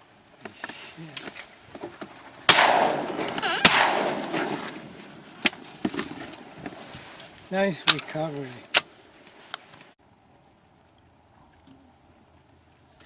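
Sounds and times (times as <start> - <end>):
shotgun shots echoing: 2.5 - 4.9.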